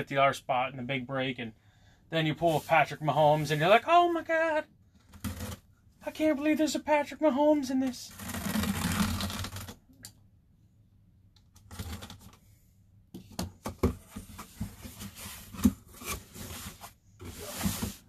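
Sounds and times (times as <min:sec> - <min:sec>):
cardboard flaps scraping and rustling: 0:14.1 - 0:18.0.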